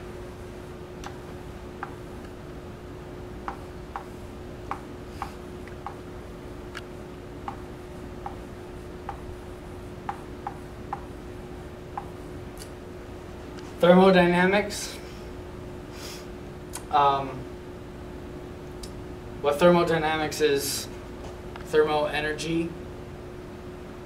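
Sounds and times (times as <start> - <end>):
steady low hum: 0.0 - 24.0
chalk tapping on a chalkboard: 3.5 - 4.1, 4.7 - 6.0, 10.1 - 11.1.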